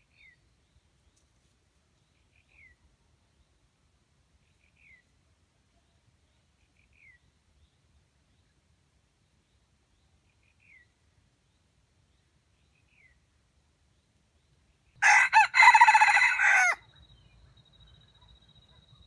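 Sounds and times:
rooster crowing: 15.0 - 16.8.

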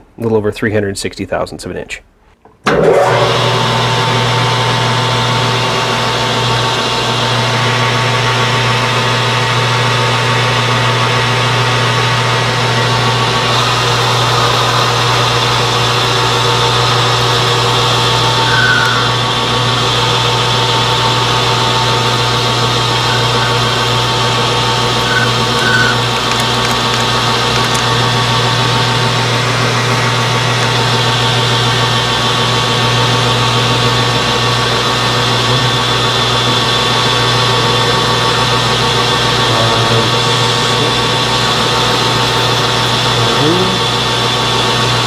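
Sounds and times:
lathe motor hum: 2.9 - 45.0.

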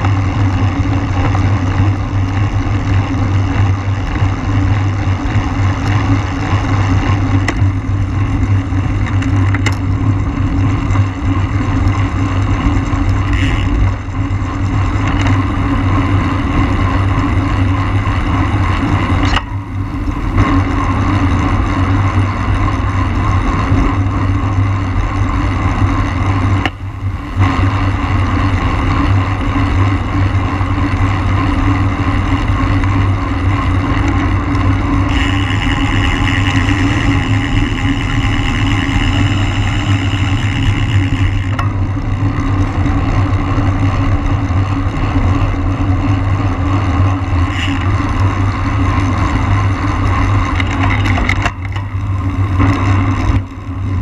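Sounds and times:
tyre and road noise: 0.0 - 54.0
wind rushing over microphone: 0.0 - 54.0
high whirring: 25.6 - 44.8.

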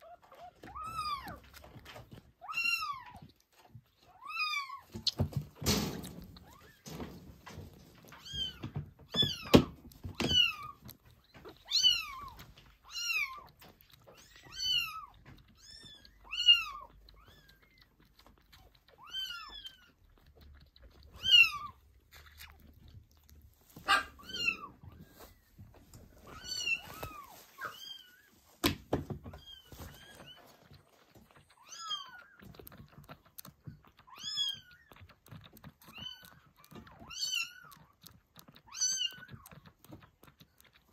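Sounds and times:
kittens mewing: 23.7 - 25.4.

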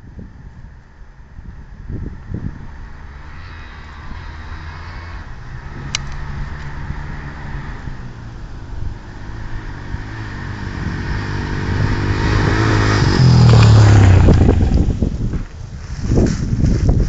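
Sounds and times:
van engine pulling under load: 1.9 - 15.5.

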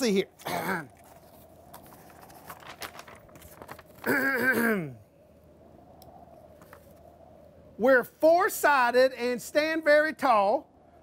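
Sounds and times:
paper crinkling: 0.4 - 4.2.

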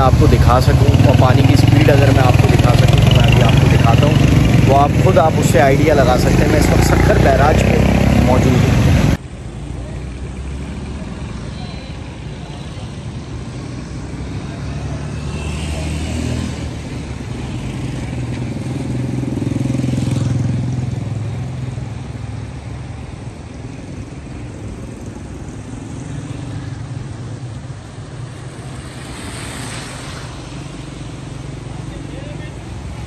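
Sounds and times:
steady rushing noise: 0.0 - 9.7, 21.8 - 33.0
vehicle and motorcycle engines: 0.0 - 33.0.

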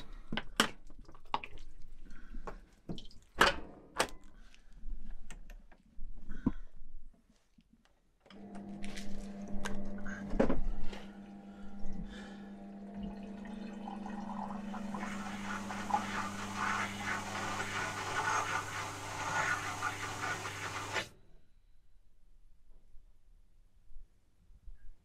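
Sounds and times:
dishwasher motor hum: 8.4 - 21.1
water rushing in dishwasher: 12.1 - 21.1.

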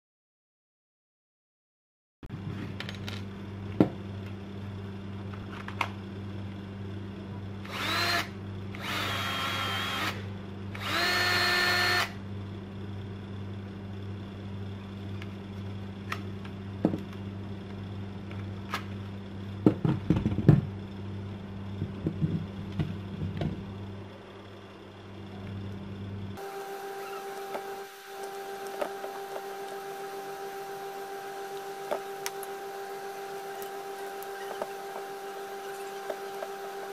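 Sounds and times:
steady low hum: 2.3 - 36.9
cordless drill motor whining: 7.6 - 10.2, 10.8 - 12.2, 26.4 - 36.9.

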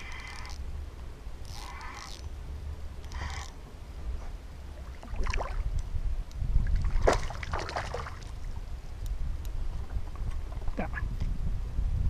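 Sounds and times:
steady low rumble: 0.0 - 12.0
water splashing: 4.7 - 5.7, 6.6 - 8.6.

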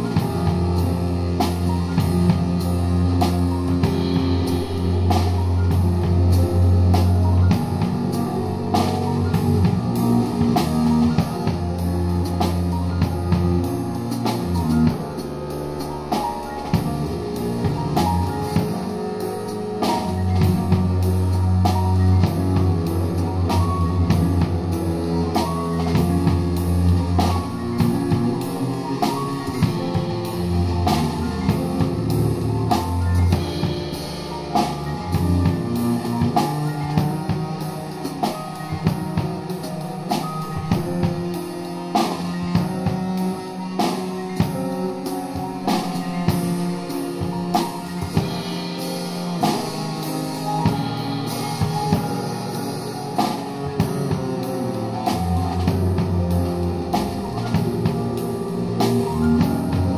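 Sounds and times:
acoustic piano: 0.0 - 59.9
double bass: 0.0 - 59.9
drum and cymbal strokes: 0.0 - 59.9.

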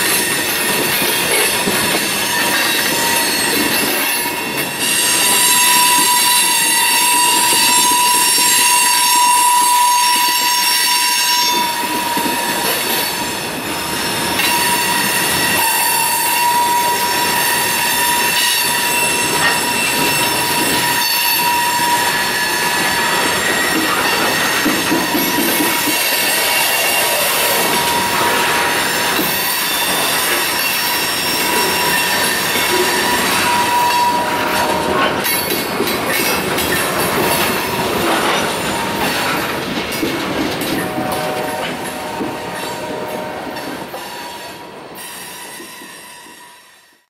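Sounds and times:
train wheels squealing: 0.0 - 47.0
wheels clacking over rail joints: 11.4 - 44.5.

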